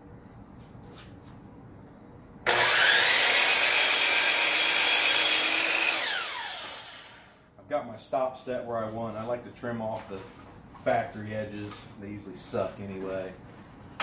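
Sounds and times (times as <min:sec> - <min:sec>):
miter saw motor whining: 0:02.4 - 0:07.4
saw blade cutting wood: 0:02.5 - 0:07.3.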